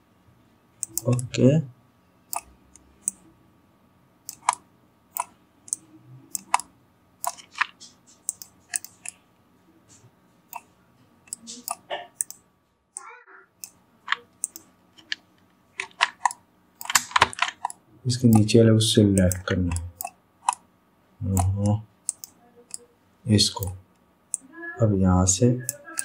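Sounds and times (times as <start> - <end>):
computer mouse clicking: 0.8 - 1.3, 2.3 - 3.2, 4.3 - 9.2, 11.3 - 12.4, 13.6 - 18.5, 19.2 - 20.6, 21.3 - 22.9, 23.6 - 24.5.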